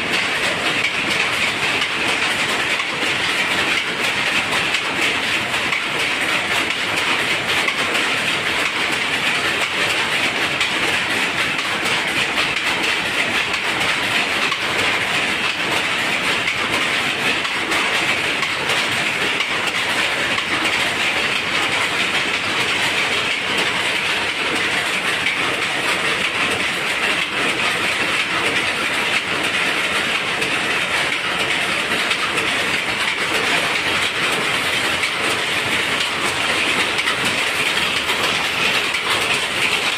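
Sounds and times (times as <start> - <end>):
power looms clattering: 0.0 - 39.9.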